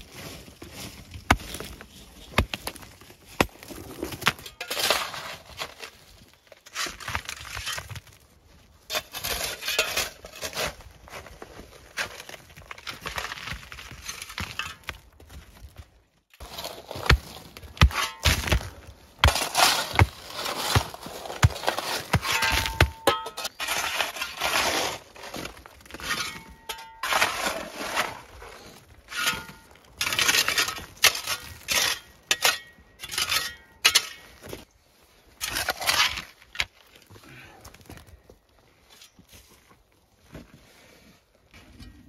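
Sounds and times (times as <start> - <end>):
shovel scraping into gravel: 3.3 - 6.0, 8.9 - 11.4, 16.4 - 34.5, 35.4 - 36.5.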